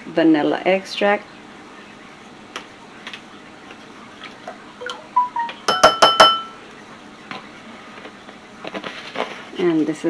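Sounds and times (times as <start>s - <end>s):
spoon clinking on glass bowl: 4.8s - 6.6s.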